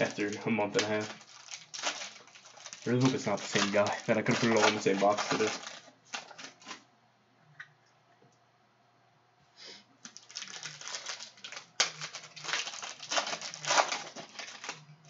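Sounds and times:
foil wrapper crinkling: 0:00.0 - 0:06.8, 0:10.0 - 0:15.0.

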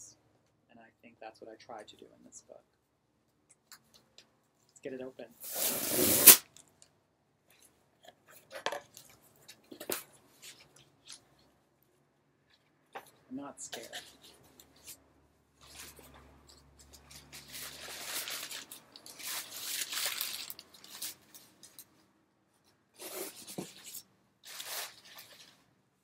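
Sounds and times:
packing paper rustling: 0:17.0 - 0:21.8, 0:23.0 - 0:25.6.

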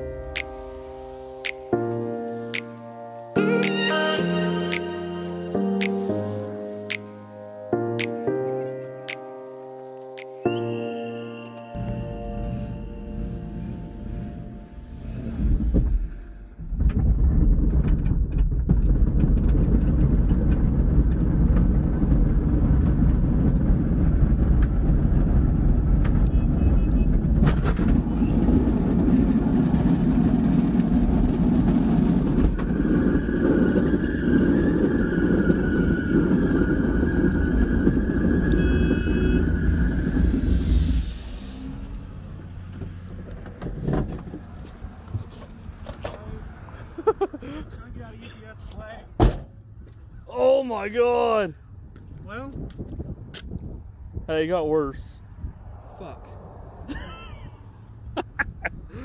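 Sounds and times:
road and tyre rumble in car: 0:11.8 - 0:50.3, 0:51.6 - 0:59.0.

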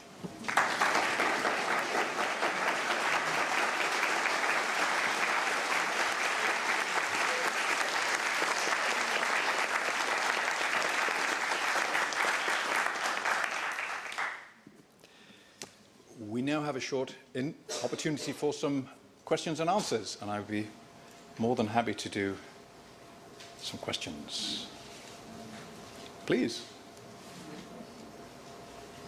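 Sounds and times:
crowd applauding: 0:00.4 - 0:14.6.

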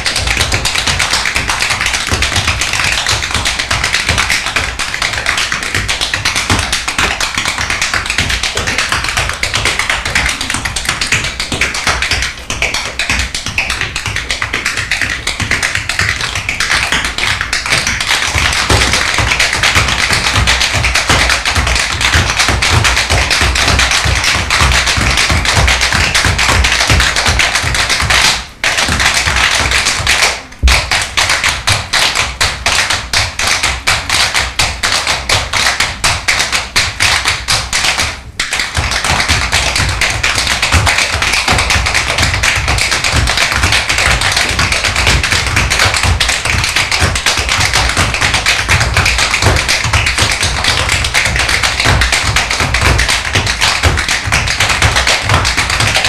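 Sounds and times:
hard foot stamp: 0:00.0 - 0:32.9
tap shoes on stage floor: 0:00.0 - 0:56.0.

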